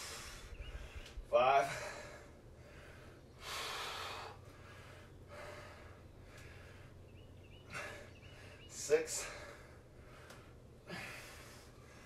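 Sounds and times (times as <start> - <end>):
man breathing hard: 0.0 - 12.0.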